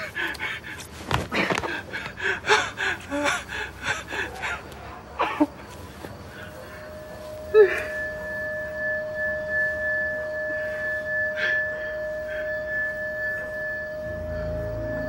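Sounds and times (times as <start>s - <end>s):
faint breaths: 0.0s - 8.3s
eerie ringing drone: 0.0s - 15.0s.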